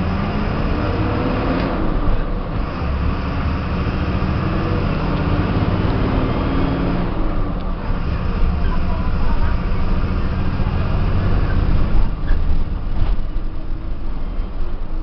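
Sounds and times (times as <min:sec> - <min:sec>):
bus diesel engine running: 0:00.0 - 0:15.0
road and body noise: 0:00.0 - 0:15.0.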